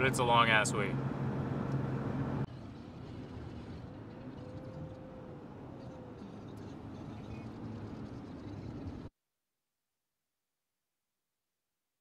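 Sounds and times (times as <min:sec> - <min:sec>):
road and engine noise in cabin: 0:00.0 - 0:09.1.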